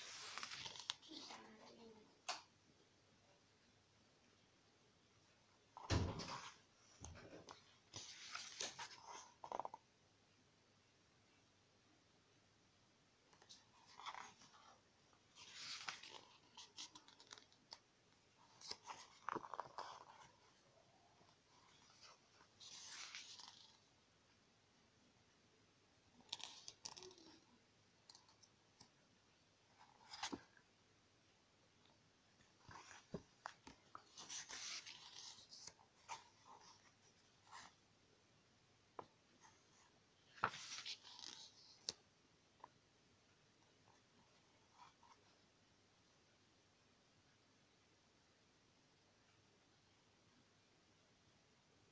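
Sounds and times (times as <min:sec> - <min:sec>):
book pages turning: 0:00.0 - 0:01.7, 0:05.8 - 0:09.8, 0:13.3 - 0:23.9, 0:26.2 - 0:29.0, 0:29.7 - 0:30.6, 0:32.4 - 0:37.8, 0:39.0 - 0:42.7.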